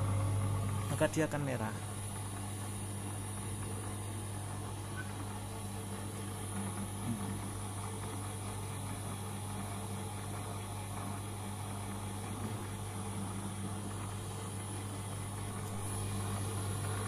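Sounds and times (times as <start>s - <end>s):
paper shredder humming: 0.0s - 17.0s.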